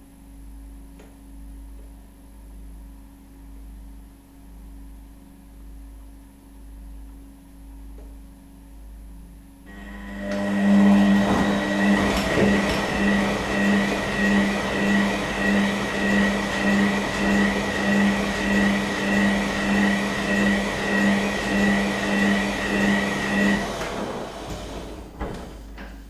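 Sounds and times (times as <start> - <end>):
high whine: 9.7 - 24.8
washing machine motor humming: 9.7 - 26.0.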